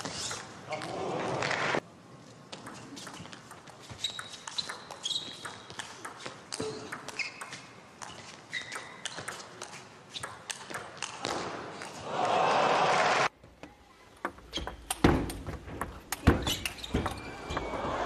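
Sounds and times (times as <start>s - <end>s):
shoes squeaking on floor: 0.0s - 0.9s, 2.7s - 10.3s, 14.2s - 18.0s
table tennis ball clicking: 2.6s - 7.5s
crowd cheering: 11.9s - 13.3s, 17.1s - 18.0s.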